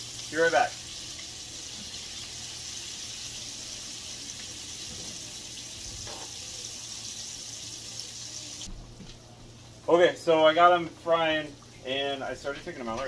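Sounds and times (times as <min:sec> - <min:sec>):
shrimp frying in hot oil: 0:00.0 - 0:08.7.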